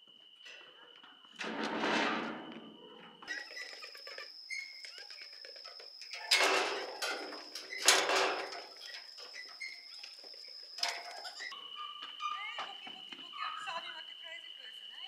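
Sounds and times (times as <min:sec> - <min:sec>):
hooves clattering on metal: 0:01.4 - 0:11.5.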